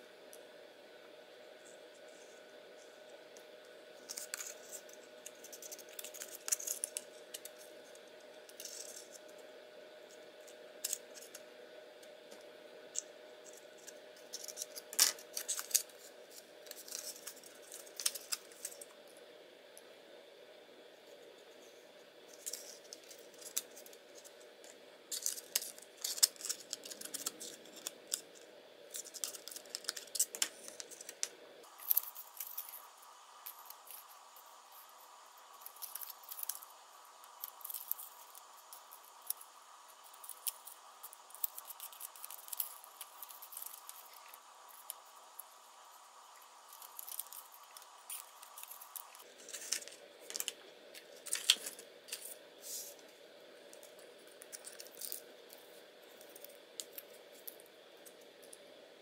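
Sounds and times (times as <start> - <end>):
stiff paper scratching and rustling: 14.3 - 18.8, 25.1 - 36.6, 46.6 - 53.0.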